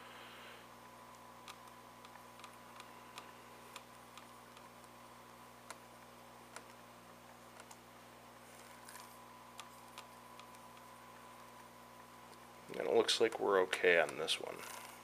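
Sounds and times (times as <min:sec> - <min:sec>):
laptop keys clicking: 0:01.4 - 0:05.0, 0:06.5 - 0:06.8, 0:07.5 - 0:07.8.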